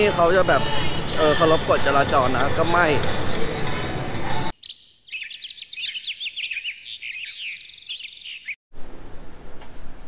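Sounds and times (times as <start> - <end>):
street noise: 0.0 - 4.6
birds chirping and singing: 4.5 - 9.2.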